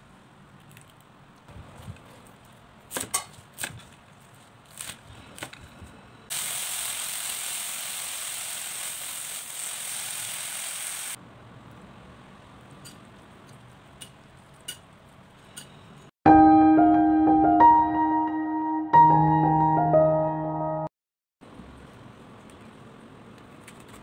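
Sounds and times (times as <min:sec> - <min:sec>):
greens sizzling in hot pan: 0:06.3 - 0:11.2.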